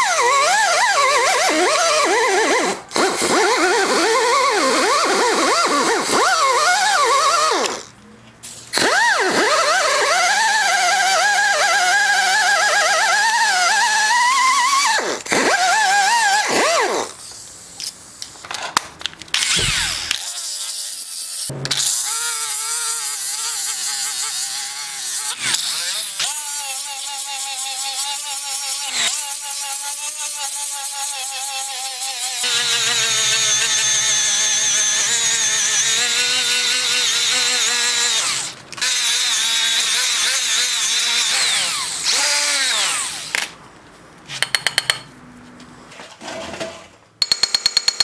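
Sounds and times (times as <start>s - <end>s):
rotary tool wire brush whining: 19.4s - 21.0s, 21.7s - 43.4s.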